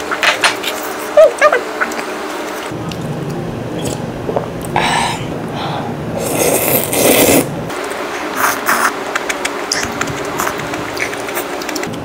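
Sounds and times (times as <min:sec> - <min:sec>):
person slurping noodles: 0:06.2 - 0:07.5
chewing clicks: 0:09.1 - 0:12.0.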